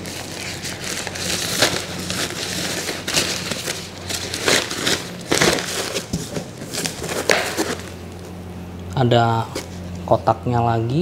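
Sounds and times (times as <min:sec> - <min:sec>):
plastic bag crinkling: 0:00.0 - 0:08.1.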